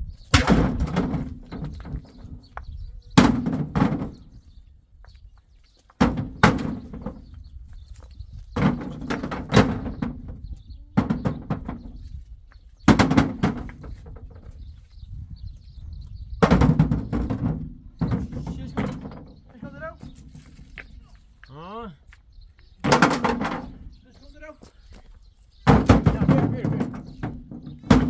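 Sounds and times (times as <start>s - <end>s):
heavy metal knocks and clunks: 0.1s - 4.6s, 6.0s - 14.9s, 16.0s - 21.0s, 22.8s - 24.2s, 25.6s - 28.0s.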